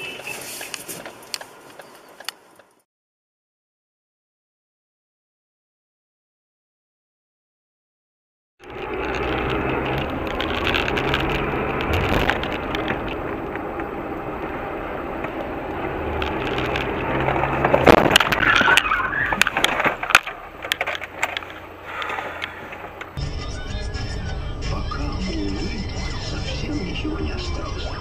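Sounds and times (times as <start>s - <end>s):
car engine and road noise: 0.0s - 2.9s, 8.6s - 28.0s
car collision crunching impacts: 8.8s - 23.2s.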